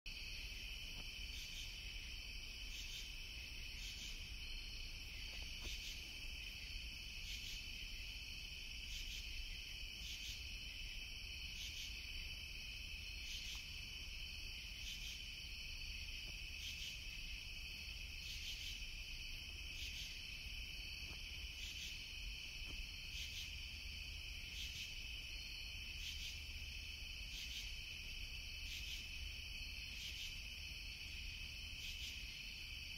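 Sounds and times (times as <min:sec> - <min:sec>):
crickets chirping: 0:00.1 - 0:32.9.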